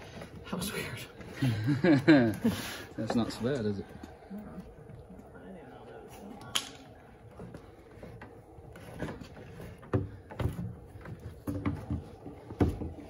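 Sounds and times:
cable scraping through wood: 7.1s - 13.0s.

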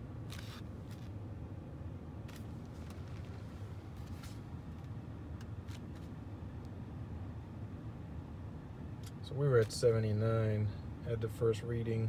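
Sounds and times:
handling clicks and rustles: 2.2s - 6.7s.

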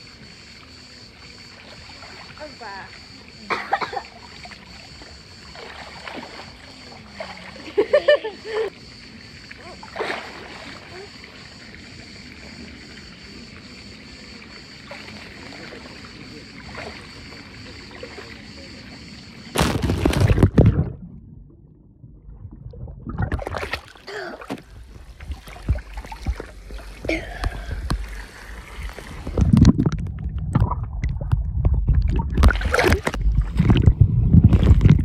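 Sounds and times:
pool water lapping: 0.0s - 35.0s
splashing and knocking: 19.5s - 21.4s, 22.1s - 35.0s.

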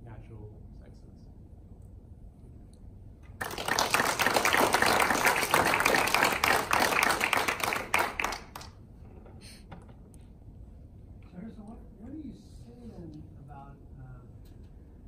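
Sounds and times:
audience applauding: 3.3s - 8.8s.

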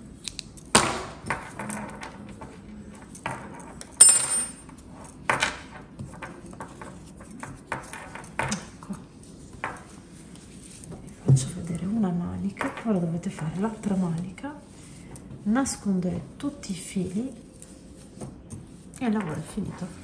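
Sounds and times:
metal tools clicking and tapping: 3.0s - 4.8s
metallic clink with ring: 4.0s - 4.6s.

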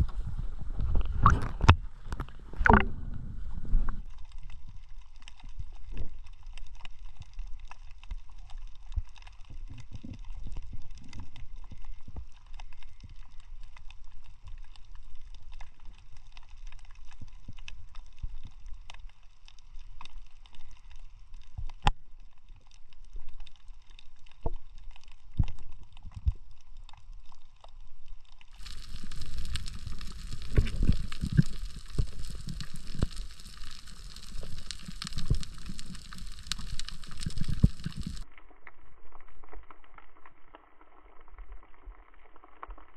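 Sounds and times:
underwater rumble of moving water: 0.0s - 42.9s
steady hiss: 28.5s - 38.2s.

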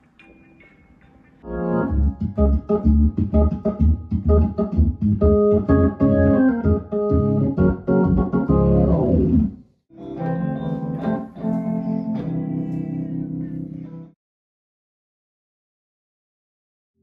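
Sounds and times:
electric piano chords: 0.2s - 9.5s
organ playing chords: 0.2s - 12.8s
pulsing bass line: 1.5s - 9.5s.

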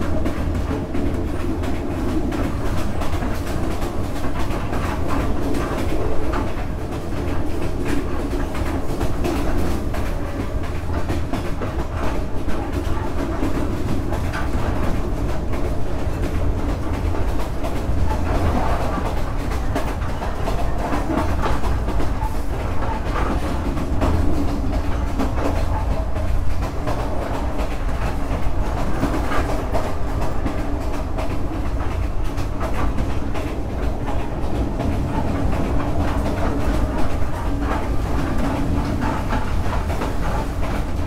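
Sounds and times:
track clacks: 0.0s - 41.0s
train wheels rumbling on rails: 0.0s - 41.0s.

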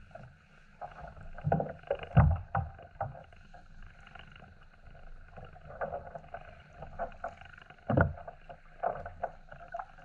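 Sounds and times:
waves lapping against plastic hull: 0.0s - 10.0s.

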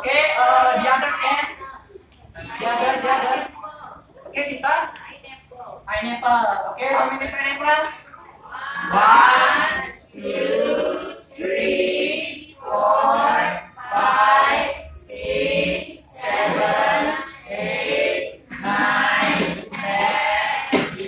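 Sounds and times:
students chanting in unison: 8.5s - 21.0s.

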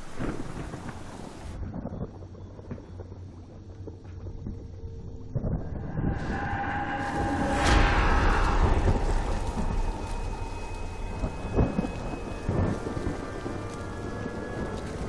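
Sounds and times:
deep rumble: 0.4s - 15.0s
droning tone: 4.3s - 15.0s
sudden hits: 5.6s - 13.7s.

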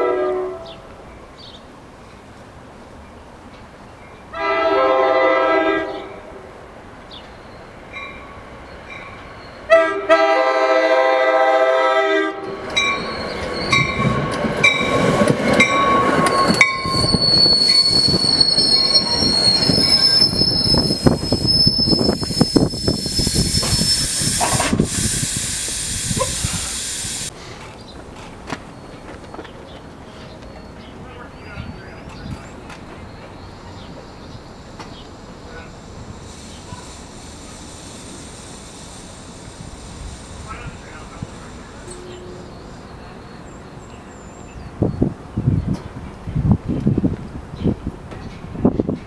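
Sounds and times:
train horn blasts: 0.0s - 0.9s, 4.3s - 6.4s, 9.7s - 12.9s, 40.5s - 42.5s
train wheels rumbling on rail: 5.5s - 49.0s
high thin wheel squeal: 12.8s - 14.2s, 15.7s - 27.3s, 35.5s - 42.6s.

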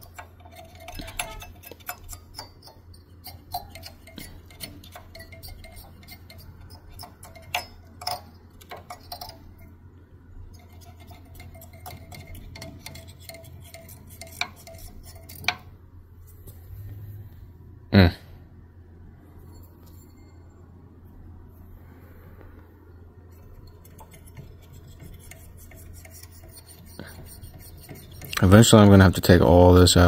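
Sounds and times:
light clicks and scratching: 0.0s - 9.7s, 23.3s - 29.6s
cotton swab scrubbing fan blades: 0.0s - 9.8s, 10.5s - 16.7s, 23.3s - 30.0s
faint low hum: 0.0s - 30.0s.

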